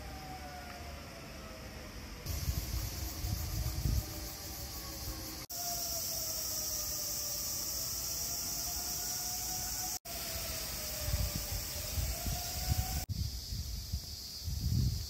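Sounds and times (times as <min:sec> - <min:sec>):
distant siren wailing: 0:00.0 - 0:13.1
high-pitched insect drone: 0:02.2 - 0:15.0.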